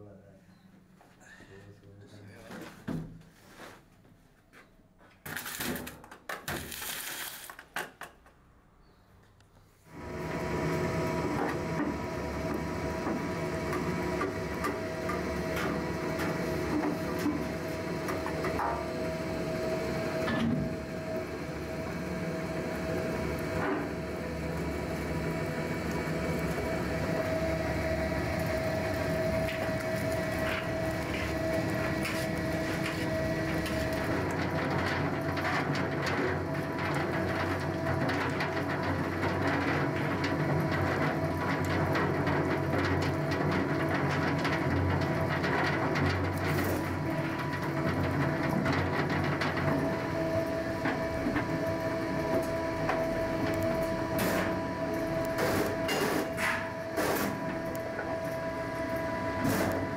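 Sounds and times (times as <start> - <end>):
factory machinery humming: 9.9 - 35.4, 46.3 - 59.9.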